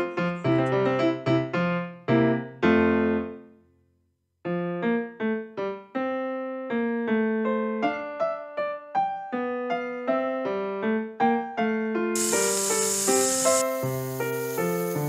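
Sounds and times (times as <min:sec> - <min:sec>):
simple keyboard melody: 0:12.2 - 0:15.0.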